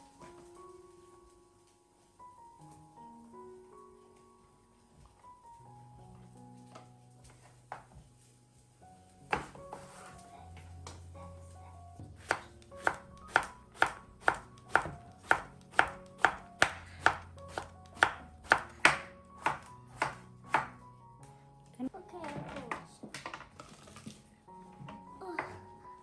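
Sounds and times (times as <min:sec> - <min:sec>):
knife striking cutting board: 0:12.2 - 0:20.8.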